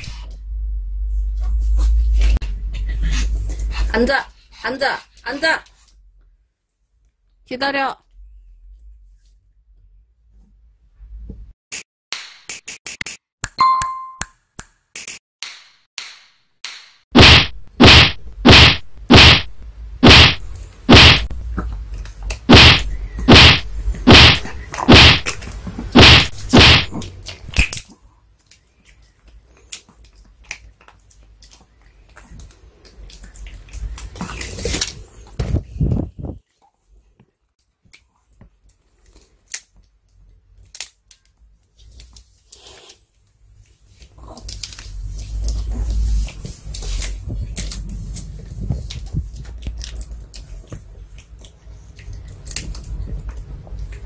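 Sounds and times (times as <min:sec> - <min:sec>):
sharp whack hits: 0:16.7 - 0:21.4, 0:22.5 - 0:27.8.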